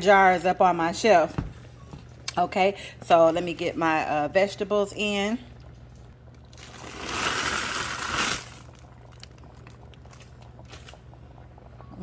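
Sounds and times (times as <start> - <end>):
frozen vegetables pouring into pot: 6.5 - 9.2.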